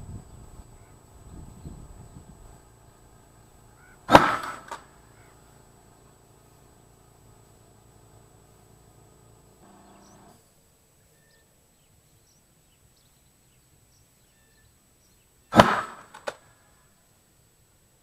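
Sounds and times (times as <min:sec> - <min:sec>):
air cannon blast: 0:03.9 - 0:05.2, 0:15.5 - 0:16.3
smaller bang: 0:04.0 - 0:05.0, 0:15.6 - 0:16.4.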